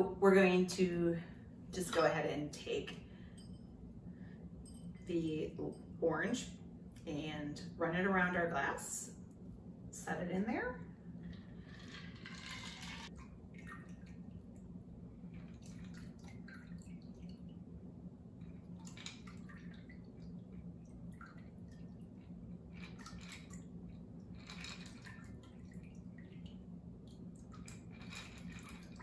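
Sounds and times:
liquid trickling and dripping: 12.4s - 29.0s.

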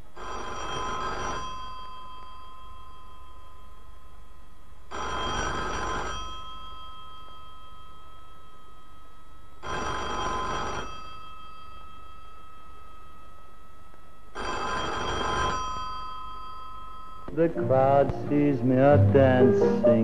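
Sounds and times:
telephone bell ringing: 0.2s - 3.7s, 4.9s - 17.3s.

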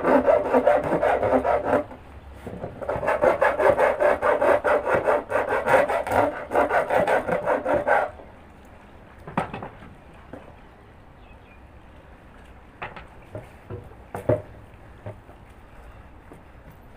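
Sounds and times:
low background noise: 0.0s - 16.9s.

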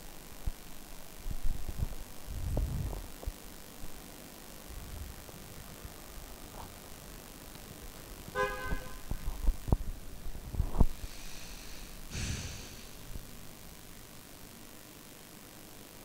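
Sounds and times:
horn-like toots: 8.3s - 9.0s.

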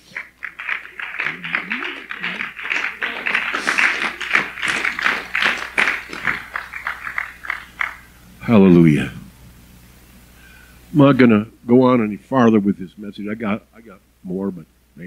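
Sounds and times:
congregation clapping: 0.0s - 8.2s.

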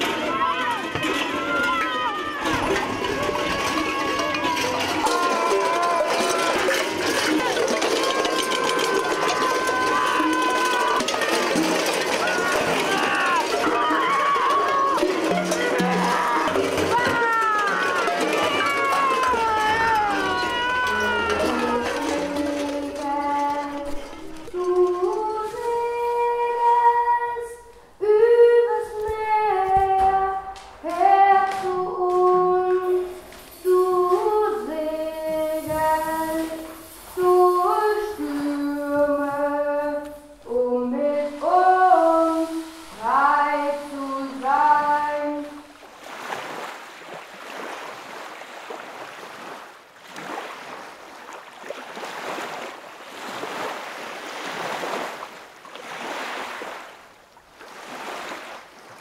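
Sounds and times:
high solo voice singing: 12.3s - 45.7s.

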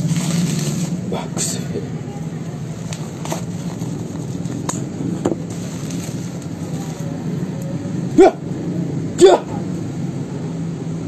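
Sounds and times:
plastic wrapping crinkling: 0.0s - 1.0s, 2.7s - 4.8s, 5.5s - 7.1s
background hum and hiss: 0.0s - 11.0s.

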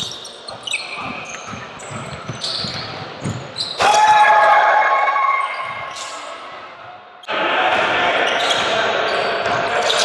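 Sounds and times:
sneaker squeaks: 0.0s - 3.9s, 5.2s - 6.5s, 8.2s - 10.0s
basketball bouncing: 0.5s - 3.6s.

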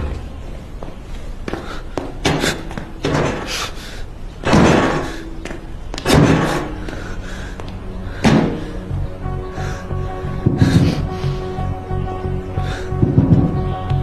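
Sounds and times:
heavy banging on a door: 4.4s - 5.1s, 6.0s - 6.8s, 8.2s - 8.7s, 13.0s - 13.8s.

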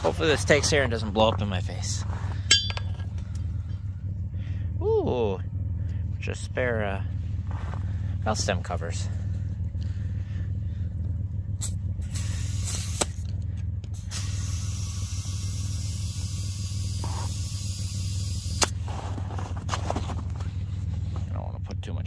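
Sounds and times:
steady low hum: 0.0s - 22.0s
air hissing into tire: 11.6s - 13.3s, 13.9s - 19.5s.

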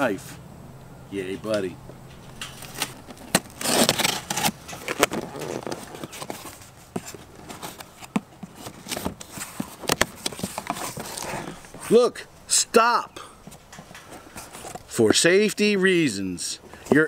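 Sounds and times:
cardboard flaps pulled open: 2.5s - 11.5s
knife slitting packing tape: 2.6s - 6.4s.

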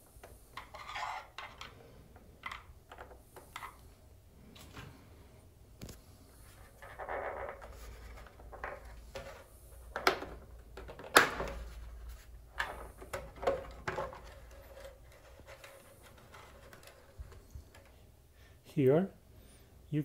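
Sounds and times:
plastic panel scraping: 0.6s - 1.7s, 6.4s - 18.0s.

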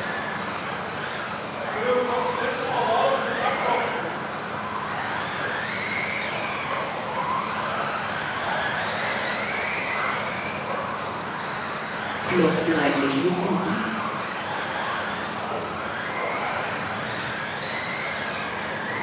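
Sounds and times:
rc car motors whining: 0.0s - 12.2s, 14.0s - 19.0s.

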